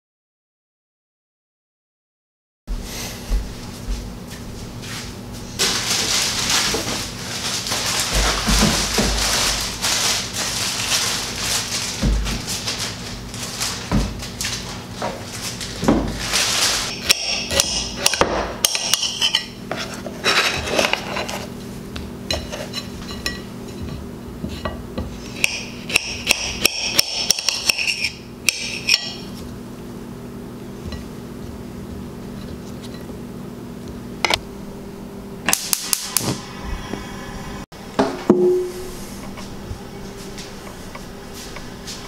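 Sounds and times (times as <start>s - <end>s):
steady low hum: 2.7s - 42.0s.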